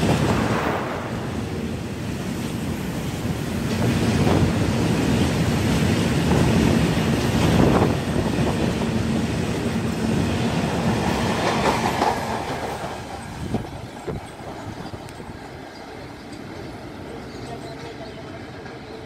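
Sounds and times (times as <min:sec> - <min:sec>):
train wheels clicking over rail joints: 0:10.6 - 0:19.0.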